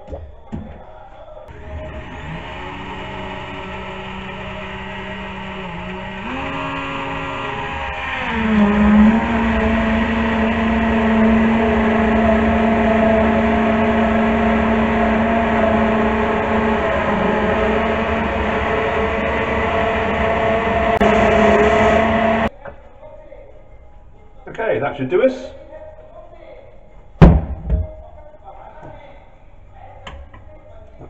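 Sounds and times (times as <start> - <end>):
stick blender motor hum: 1.5 - 22.5.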